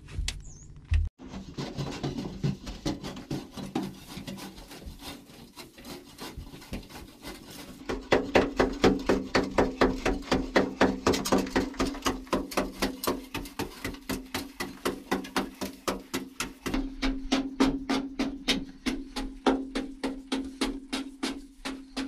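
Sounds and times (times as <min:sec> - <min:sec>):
hand tools scraping earth: 0:01.2 - 0:22.0
fast sharp knocks: 0:07.8 - 0:22.0.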